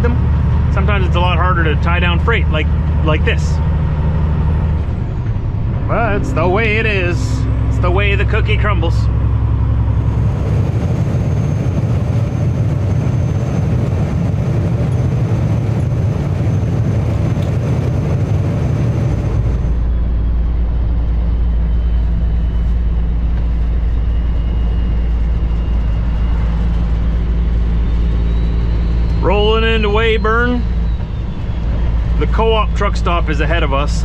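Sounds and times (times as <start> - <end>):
deep low rumble: 0.0 - 34.0
diesel engine droning: 0.0 - 34.0
tyre and road noise: 0.0 - 34.0.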